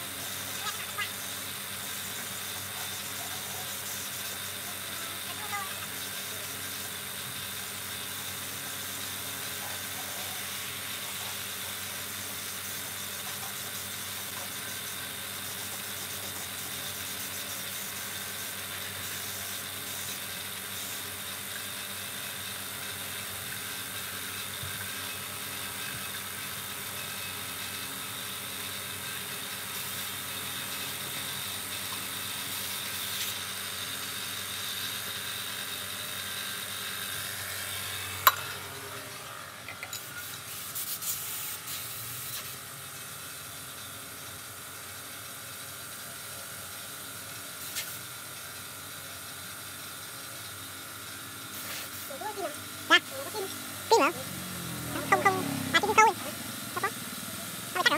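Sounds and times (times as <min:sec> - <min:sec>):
electric motor humming: 0:29.1 - 0:39.7, 0:51.2 - 0:57.9.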